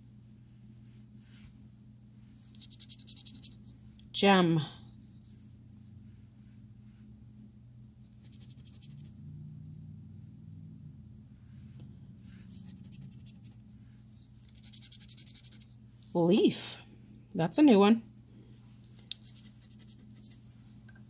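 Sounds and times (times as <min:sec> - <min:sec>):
low steady hum: 0:00.0 - 0:21.0
scratching lottery ticket coating: 0:14.5 - 0:15.7.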